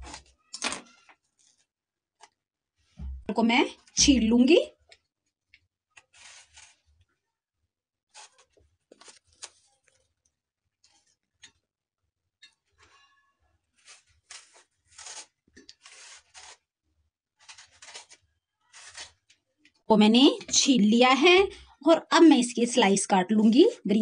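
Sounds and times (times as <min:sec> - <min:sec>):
peeler scraping apple skin: 0:06.0 - 0:06.8, 0:13.8 - 0:16.7, 0:17.4 - 0:19.4.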